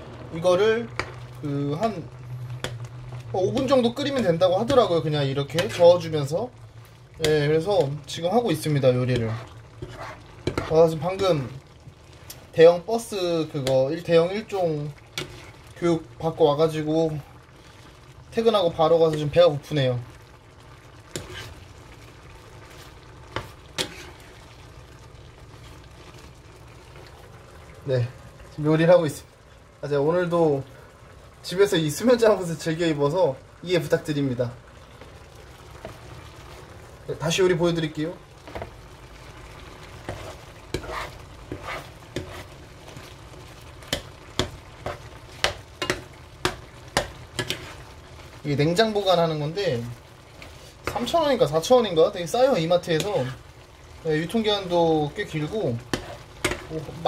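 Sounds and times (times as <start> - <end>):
ladle stirring in a pan: 0.0 - 28.6, 30.6 - 57.0
food simmering in a frying pan: 0.0 - 57.0
sauce bubbling and sizzling: 0.0 - 57.0
spatula scraping frying pan: 9.0 - 11.3, 14.4 - 15.7, 21.1 - 21.7, 22.6 - 24.5, 39.8 - 48.1, 50.3 - 51.2, 55.8 - 57.0.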